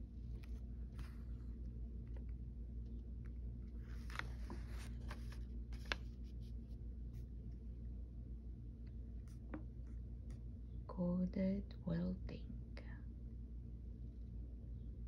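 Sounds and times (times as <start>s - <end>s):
steady low hum: 0.0s - 15.0s
paper pages turning: 0.3s - 2.4s, 3.3s - 6.6s.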